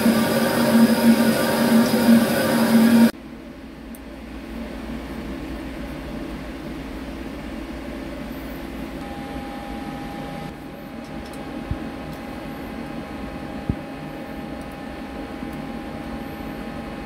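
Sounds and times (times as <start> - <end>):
idling machine hum and hiss: 0.0 - 3.2
thin steady whine: 0.0 - 3.2, 7.4 - 17.0.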